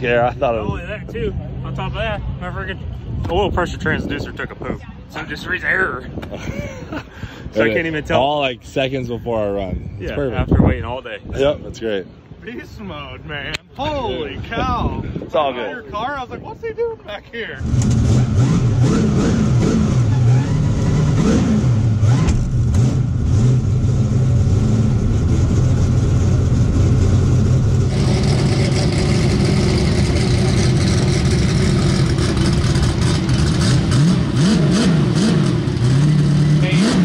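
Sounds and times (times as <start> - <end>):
race car engine revving: 17.6 - 37.0.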